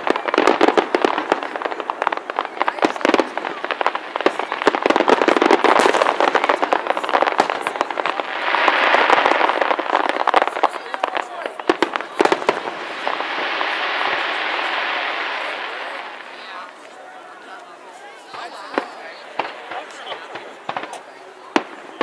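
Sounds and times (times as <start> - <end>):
firework shells bursting: 0.0 - 16.9
dense firework crackling: 0.0 - 22.0.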